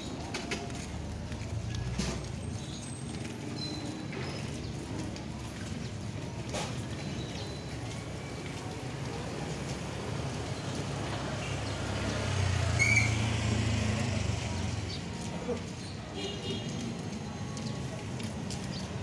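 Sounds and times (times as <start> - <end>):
street traffic noise: 0.0 - 19.0
motorcycle engine passing: 11.2 - 15.1.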